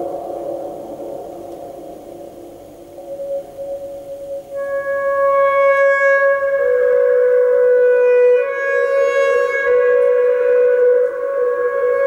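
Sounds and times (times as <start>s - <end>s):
saxophone long notes: 3.1s - 12.0s.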